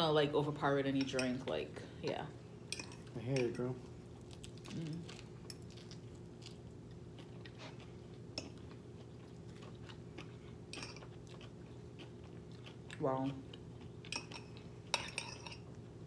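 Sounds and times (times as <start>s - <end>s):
close chewing: 4.2s - 14.7s.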